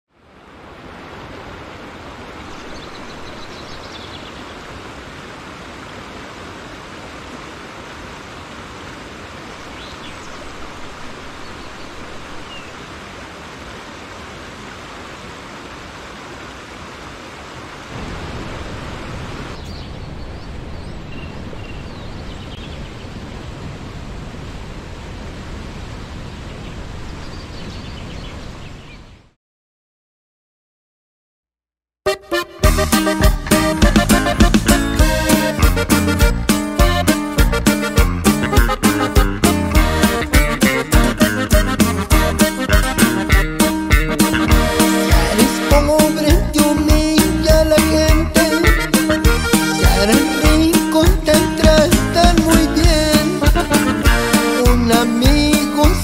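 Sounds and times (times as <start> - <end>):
water rushing over a dam: 0.1 - 19.7.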